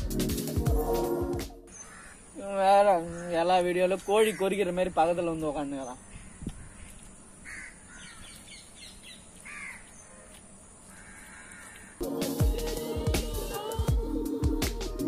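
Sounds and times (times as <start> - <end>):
electronic music with a beat: 0.0 - 1.7, 12.0 - 15.0
crows cawing: 1.7 - 4.9, 6.0 - 8.6, 9.4 - 12.1.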